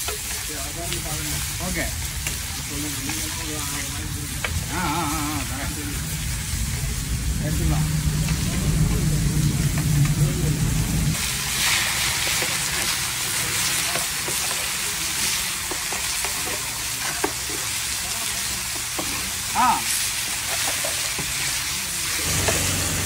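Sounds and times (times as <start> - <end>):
metal spatula scraping and tapping: 0.0 - 0.4
fish sizzling in oil: 0.0 - 23.0
low hum: 4.5 - 11.2.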